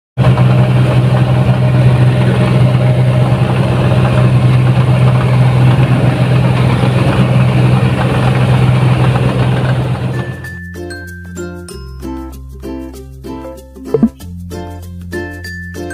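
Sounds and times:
diesel engine droning: 0.2s - 10.2s.

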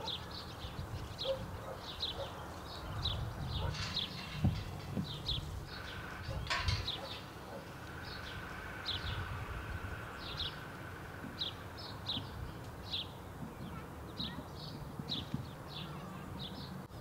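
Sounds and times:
small birds chirping: 0.0s - 17.0s
low steady rumble: 2.8s - 15.1s
metallic gate latch clink: 3.5s - 7.8s.

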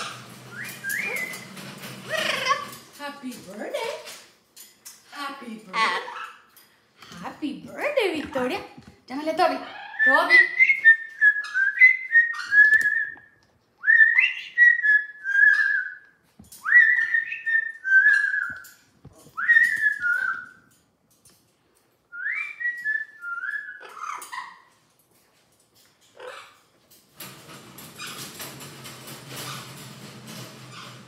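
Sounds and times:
parrot whistling: 0.5s - 1.5s, 9.7s - 18.6s, 19.4s - 20.6s, 22.1s - 24.2s.

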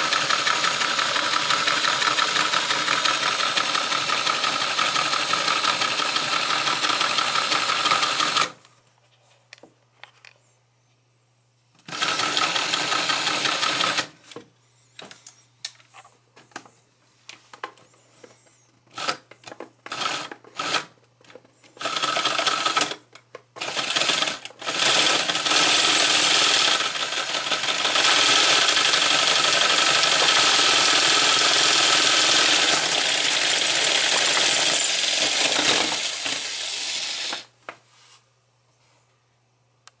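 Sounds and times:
plastic engine model rattling: 0.0s - 8.5s, 19.0s - 37.5s.

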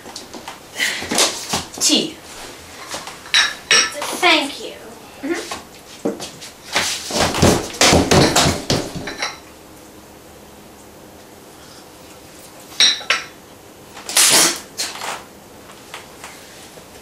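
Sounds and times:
dishes clattering on a table: 2.8s - 4.1s, 7.2s - 9.5s, 12.8s - 13.4s
cup clinking on saucer: 12.8s - 13.4s.

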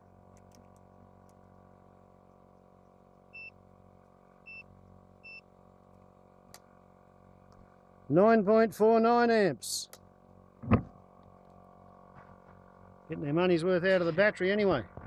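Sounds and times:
click: 0.3s - 1.4s
short electronic beeps: 3.4s - 3.6s, 4.5s - 5.5s
air compressor hum: 9.6s - 15.0s.

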